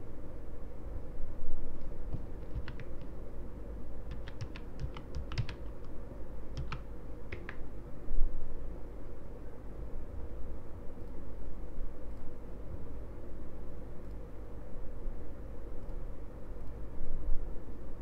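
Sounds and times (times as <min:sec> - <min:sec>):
low background hum: 0:00.0 - 0:18.0
keyboard keys clicking: 0:02.1 - 0:03.2, 0:04.0 - 0:05.9, 0:06.5 - 0:07.7.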